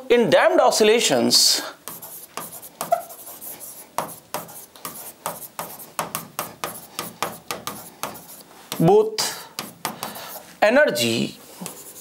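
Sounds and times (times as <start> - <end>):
stylus scratching and tapping glass: 1.8 - 10.3.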